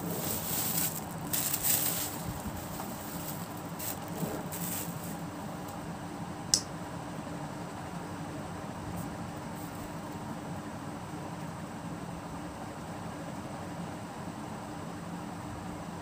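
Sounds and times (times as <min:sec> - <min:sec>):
cloth and plastic rustling: 0:00.0 - 0:05.8
steady low hum: 0:00.0 - 0:10.8.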